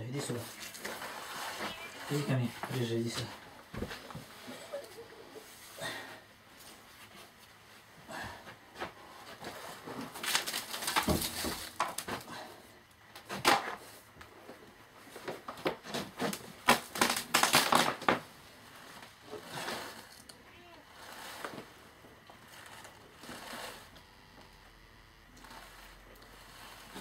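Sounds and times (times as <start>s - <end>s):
cardboard rustling and scraping: 0.2s - 4.4s, 8.8s - 12.4s, 15.1s - 24.0s, 25.4s - 27.0s.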